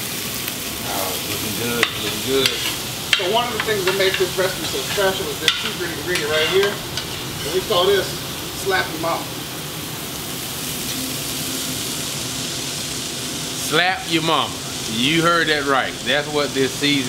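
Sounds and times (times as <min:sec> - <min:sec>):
onions sizzling in butter: 0:00.0 - 0:17.0
utensil scraping and knocking pan: 0:01.4 - 0:07.6.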